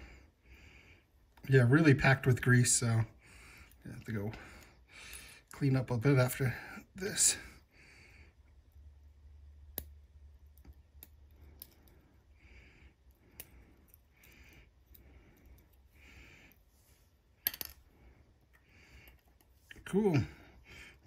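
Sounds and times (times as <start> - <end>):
soft breathing: 0.0 - 1.4, 3.0 - 5.5, 6.5 - 8.9, 11.2 - 21.0.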